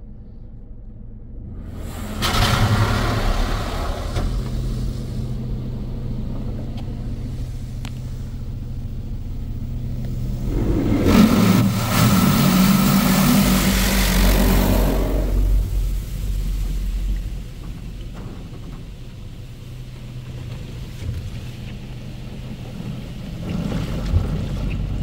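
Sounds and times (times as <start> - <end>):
steady low hum: 0.0 - 25.0
high-pressure water spray on car: 10.4 - 25.0.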